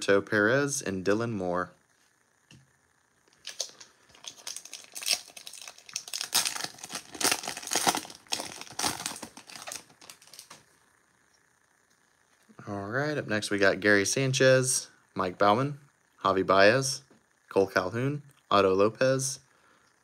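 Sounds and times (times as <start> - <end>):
foil wrapper tearing and crinkling: 3.4 - 10.6.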